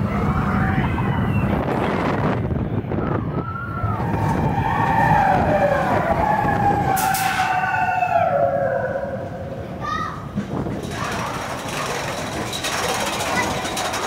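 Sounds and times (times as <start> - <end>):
riders screaming and whooping: 0.0 - 2.1, 2.8 - 9.7
roller coaster rumbling on track: 0.0 - 14.0.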